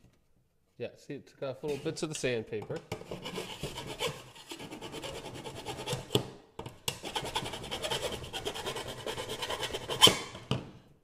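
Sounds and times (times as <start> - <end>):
hand file rasping on metal: 3.1 - 6.2, 7.0 - 10.2.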